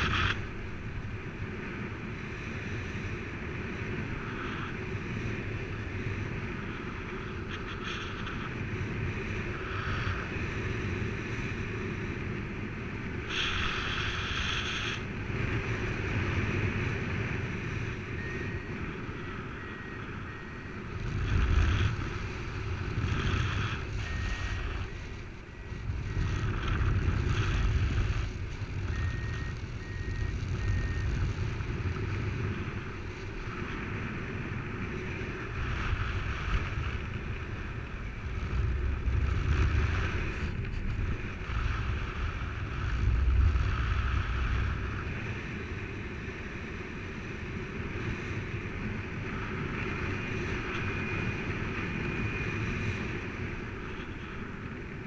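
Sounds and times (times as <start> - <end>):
wind buffeting microphone: 0.0 - 55.0
faint high electronic beeps: 17.7 - 22.0, 23.1 - 28.1, 28.8 - 31.3.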